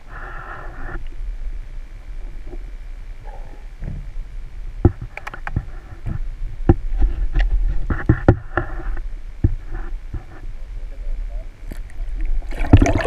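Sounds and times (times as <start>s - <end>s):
low rumble of underwater water: 0.0s - 13.0s
sharp clicks and knocks: 4.8s - 8.7s.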